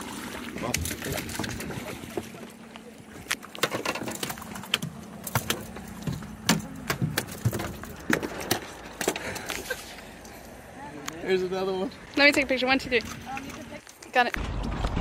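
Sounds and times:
knocks and clatter on boat deck: 0:03.5 - 0:09.5.

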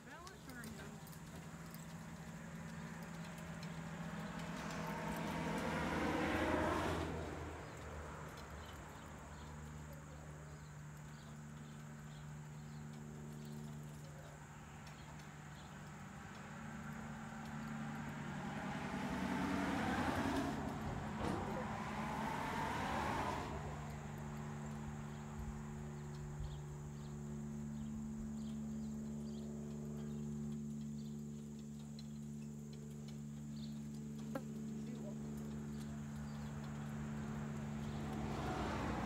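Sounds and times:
vehicle passing by: 0:00.1 - 0:31.1, 0:33.4 - 0:39.0.

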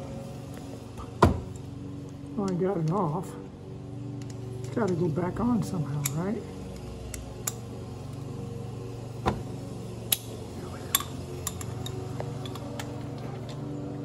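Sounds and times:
ratchet and socket clinking: 0:06.0 - 0:07.7, 0:10.9 - 0:13.0.

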